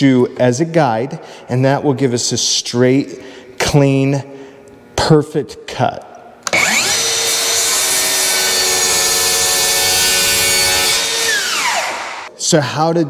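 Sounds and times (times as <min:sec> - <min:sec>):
circular saw cutting wood: 0:06.5 - 0:12.3.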